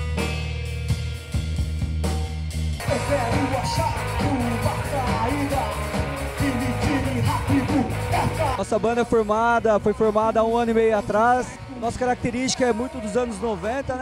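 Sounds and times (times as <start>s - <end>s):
rock band playing: 0.0s - 14.0s
man singing: 2.8s - 14.0s.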